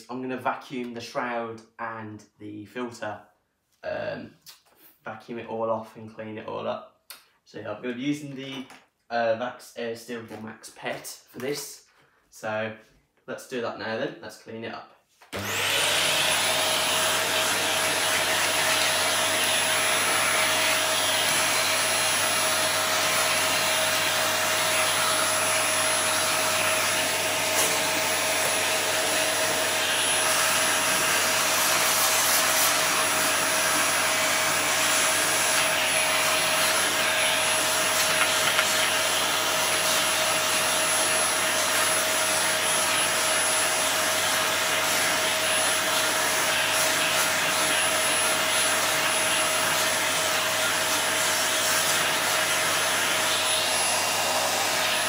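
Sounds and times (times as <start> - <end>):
vacuum cleaner running: 15.3 - 55.0.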